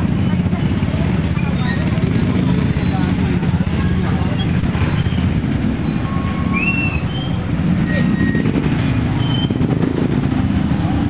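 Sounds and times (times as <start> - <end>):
motorcycle traffic rumble: 0.0 - 11.0
short high squeaks and chirps: 1.1 - 9.6.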